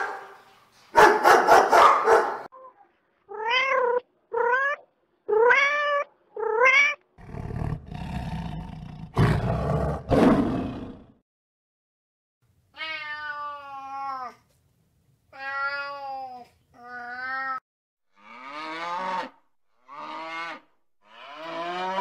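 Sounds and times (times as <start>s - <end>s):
dog barking: 0.0s - 2.5s
cat meowing: 3.3s - 7.0s, 12.8s - 14.4s, 15.4s - 17.6s
lion growling and roaring: 7.2s - 11.2s.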